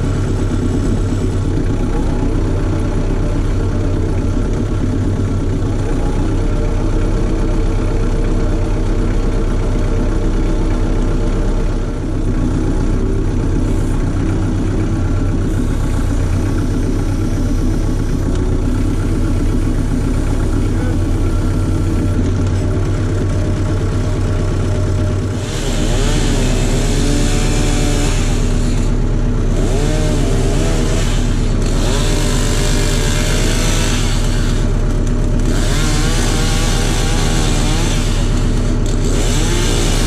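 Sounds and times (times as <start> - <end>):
tractor diesel engine running: 0.0 - 40.0
powered tool running in bursts: 25.2 - 40.0.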